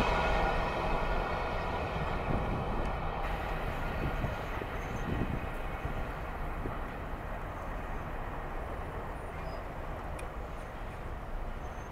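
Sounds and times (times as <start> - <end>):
train wheels rumbling on rails: 0.0 - 11.9.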